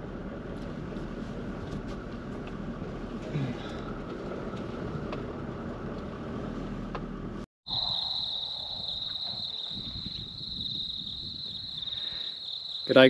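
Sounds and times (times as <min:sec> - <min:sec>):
vehicle cabin rumble: 0:00.0 - 0:07.5
insects chirring: 0:07.7 - 0:13.0.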